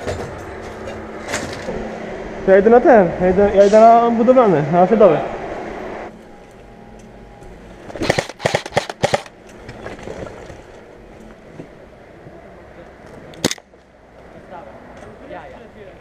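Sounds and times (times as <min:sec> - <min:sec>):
airsoft guns firing: 0:08.0 - 0:09.3.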